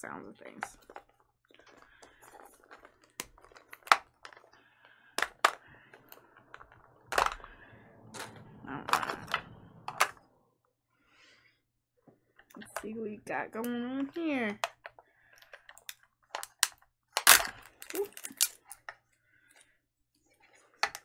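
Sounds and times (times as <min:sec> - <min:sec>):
plastic pieces rustling: 0:00.4 - 0:10.2, 0:14.0 - 0:19.7
plastic clicks and snaps: 0:13.6 - 0:19.0.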